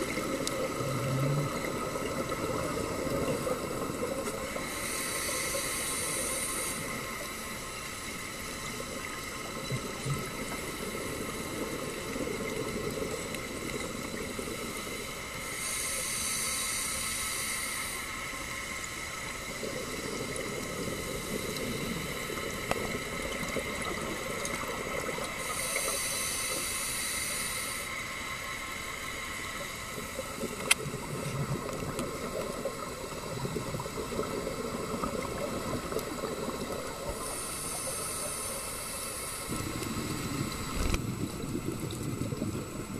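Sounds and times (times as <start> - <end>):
exhaled bubbles gurgling: 0.0 - 16.4, 19.0 - 27.5, 29.5 - 42.9
scuba regulator inhalation hiss: 1.5 - 8.6, 14.0 - 24.4, 25.0 - 31.3, 32.2 - 40.9.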